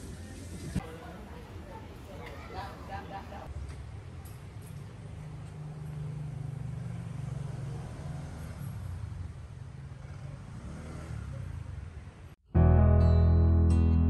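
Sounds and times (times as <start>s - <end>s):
road vehicle rumble: 3.4s - 12.4s.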